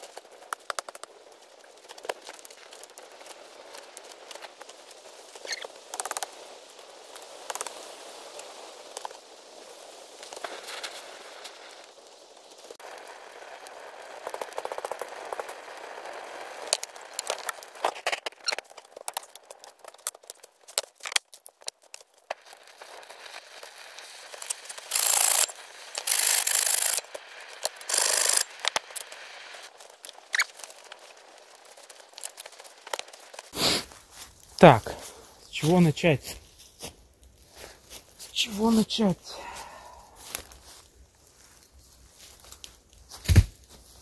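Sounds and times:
campfire crackling: 0.0 - 44.0
short loud hiss bursts: 33.5 - 34.2.

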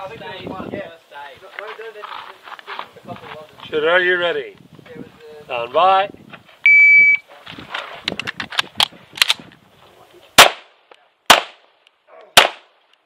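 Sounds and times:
clicks and scuffs of movement: 1.5 - 3.7
pistol shots: 10.4 - 11.6, 12.4 - 12.8.

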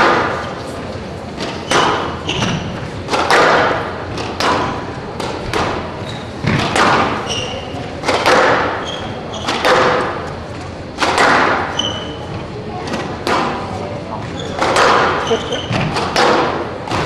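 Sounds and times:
squash ball hits: 0.0 - 0.6, 1.4 - 7.4, 8.0 - 10.3, 10.9 - 12.1, 12.9 - 13.7, 14.5 - 17.0
shoes squeaking on court floor: 1.4 - 3.0, 5.4 - 8.0, 8.7 - 9.6, 11.7 - 12.5, 13.8 - 16.1.

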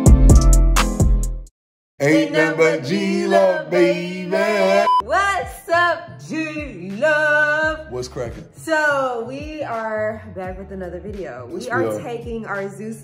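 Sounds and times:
voices singing wordless tune: 2.0 - 10.0, 11.5 - 12.6.

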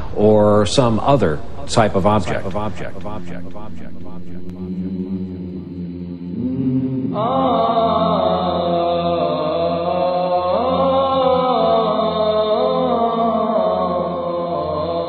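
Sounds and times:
low hum: 0.0 - 11.8
person chanting long notes: 0.0 - 15.0.

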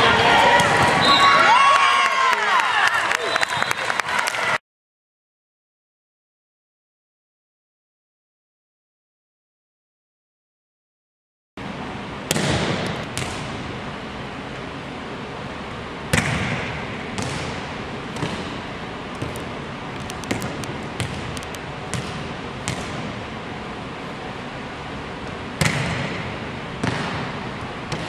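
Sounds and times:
volleyball smacks echoing in gym: 12.2 - 13.7, 16.1 - 23.2, 25.6 - 28.0.

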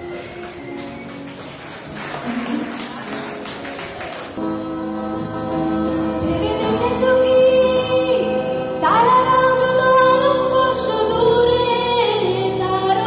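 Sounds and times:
acoustic guitar chords: 4.4 - 13.0
woman singing: 5.2 - 13.0.

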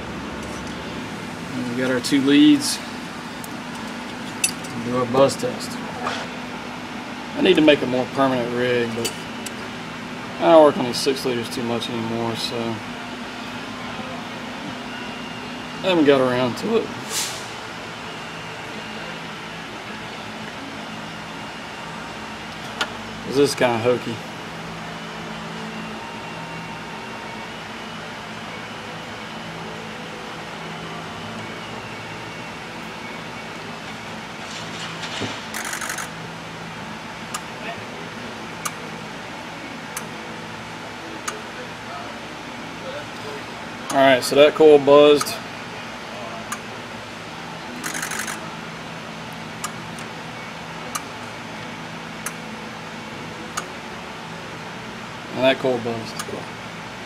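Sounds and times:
mechanical hum and hiss: 0.0 - 57.0
injector coil buzzing: 35.5 - 36.2, 47.7 - 48.4.

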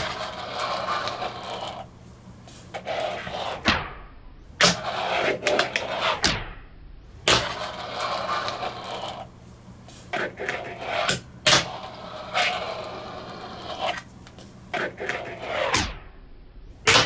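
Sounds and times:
small wheels rolling on desk: 0.0 - 1.9, 2.7 - 3.6, 4.8 - 6.2, 7.3 - 9.3, 10.1 - 14.1, 14.7 - 15.8.

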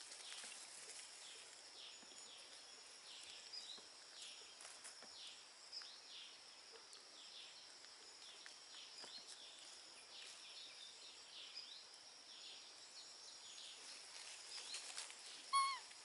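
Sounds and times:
dry leaves crackling: 0.0 - 1.6, 14.0 - 16.0.

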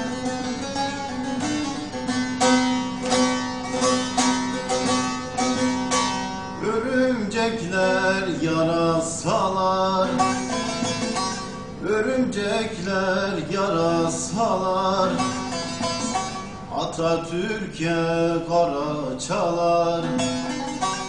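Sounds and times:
plucked long-necked lute melody: 0.0 - 6.8, 7.6 - 11.9, 13.2 - 17.0, 19.4 - 21.0.

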